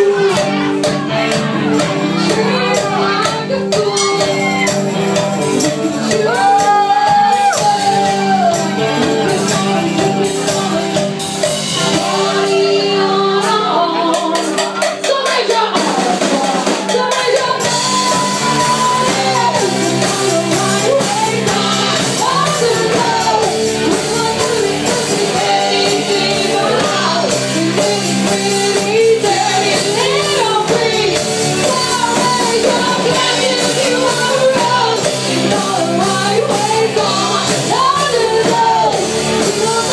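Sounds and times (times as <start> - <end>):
drum kit: 0.0 - 39.9
electric guitar: 0.0 - 39.9
woman singing into microphone: 2.1 - 4.8, 5.6 - 39.9
voices shouting along: 6.0 - 9.8.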